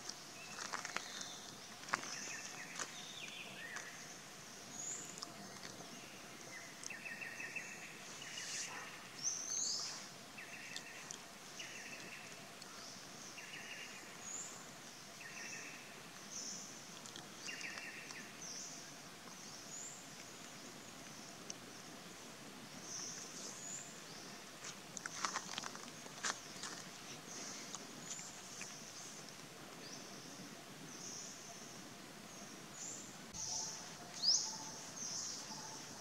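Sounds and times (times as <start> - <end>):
steady hiss: 0.0 - 36.0.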